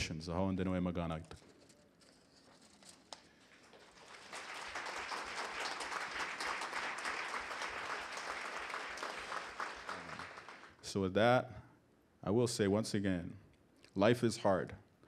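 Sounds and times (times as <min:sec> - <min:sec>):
audience applauding: 0:03.4 - 0:10.8.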